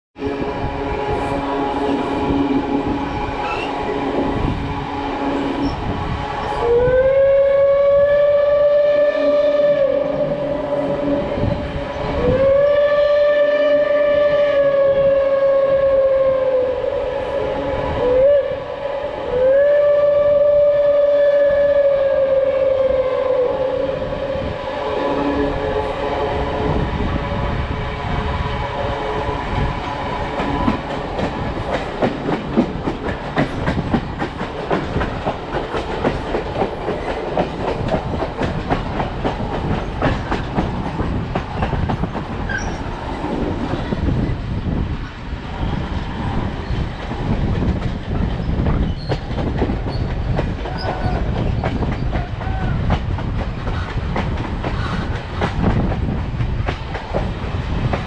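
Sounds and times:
steam locomotive whistle blasts: 0.2s - 29.4s
passenger car rumbling on rails: 23.6s - 58.0s.

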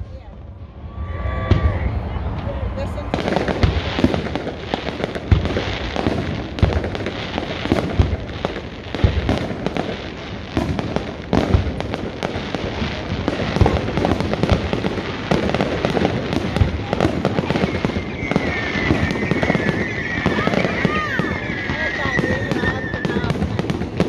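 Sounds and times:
firework crackling: 0.0s - 24.0s
firework shells bursting: 3.2s - 24.0s
high wavering whistle: 17.5s - 23.2s.

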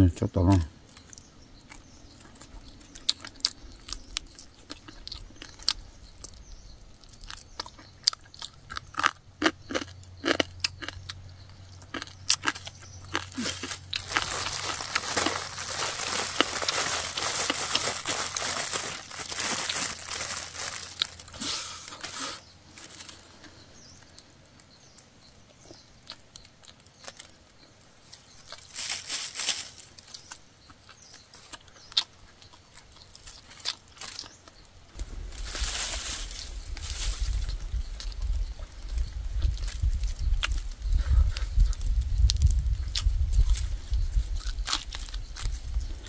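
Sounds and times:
chewing and crunching bones: 0.9s - 46.0s.

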